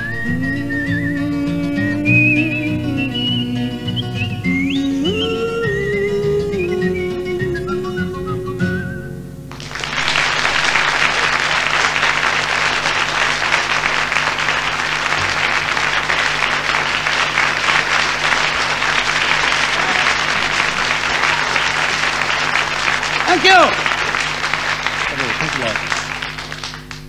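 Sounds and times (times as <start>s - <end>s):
music: 0.0s - 9.6s
audience applauding: 9.5s - 27.0s.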